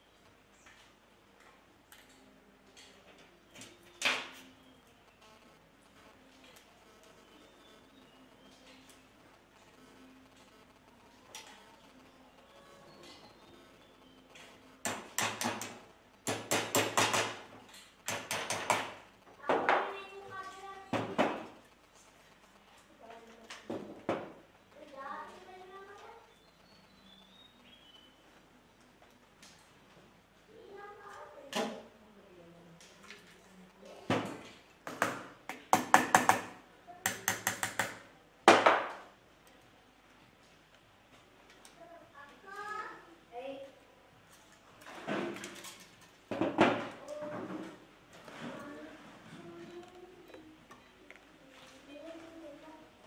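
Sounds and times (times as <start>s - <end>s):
small hammer tapping pins: 14.8s - 17.4s, 18.0s - 19.0s, 34.9s - 38.0s.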